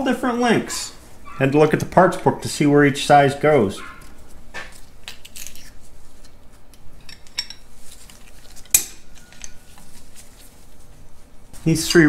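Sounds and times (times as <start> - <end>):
metal parts clinking: 7.0 - 7.6.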